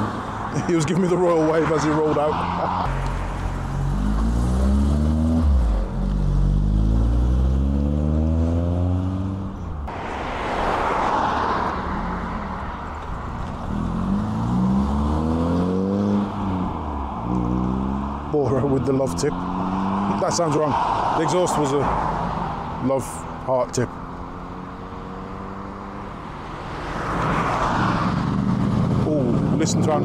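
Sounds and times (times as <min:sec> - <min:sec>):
passing car noise: 0:00.0 - 0:30.0
car engine revving through gears: 0:02.4 - 0:09.5, 0:13.4 - 0:21.1, 0:22.2 - 0:29.6
car pulling away: 0:02.7 - 0:21.2.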